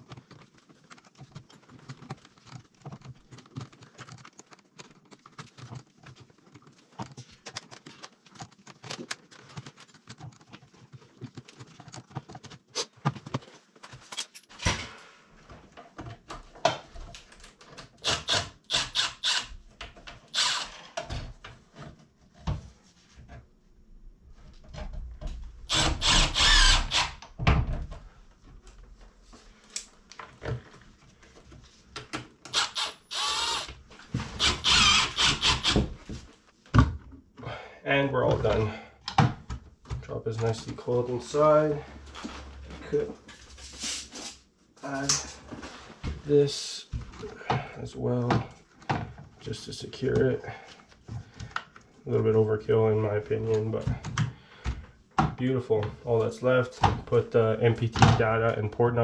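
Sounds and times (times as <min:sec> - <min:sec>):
hands rubbing plastic: 0:00.0 - 0:14.0, 0:43.2 - 0:47.2.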